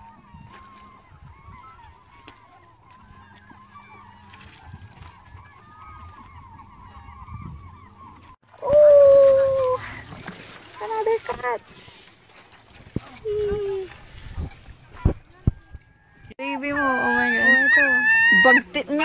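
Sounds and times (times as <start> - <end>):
loud drawn-out gull call: 0.0 - 11.6, 16.0 - 19.0
gulls calling: 0.0 - 19.0.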